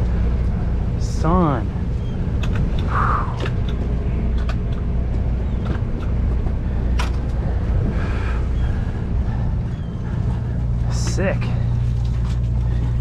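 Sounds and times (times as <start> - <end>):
boat engine droning: 0.0 - 13.0
sharp clicks and knocks: 2.4 - 7.4.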